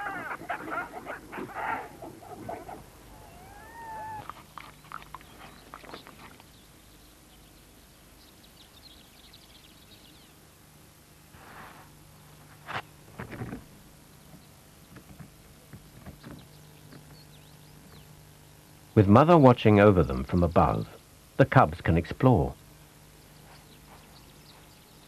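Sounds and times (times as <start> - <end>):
leopard calls: 0.0 - 6.3
faint high chirping: 3.1 - 7.5.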